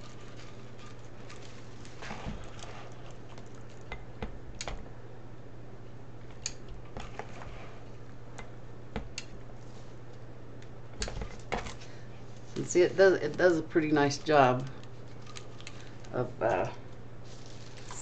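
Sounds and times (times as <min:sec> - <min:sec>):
steady low hum: 0:00.0 - 0:18.0
plastic mesh rustling: 0:17.2 - 0:18.0.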